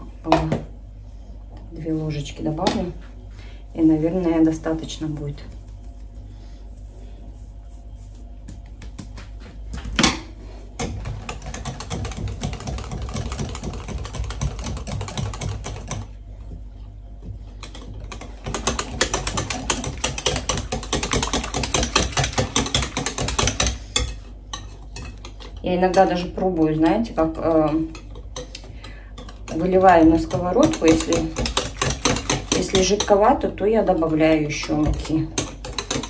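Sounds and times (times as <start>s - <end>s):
utensil clicking in batter bowl: 10.8s - 16.1s, 17.6s - 26.5s, 27.2s - 36.0s.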